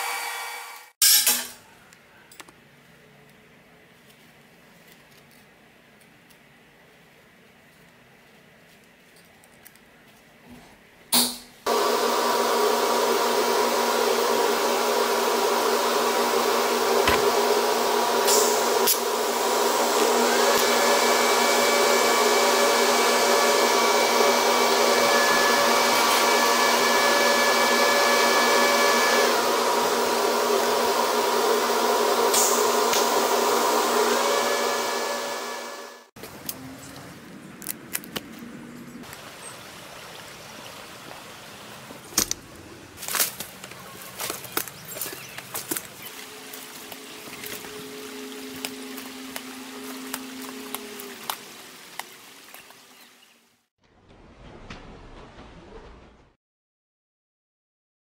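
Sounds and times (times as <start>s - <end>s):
welding arc hissing buzz: 11.7s - 36.1s.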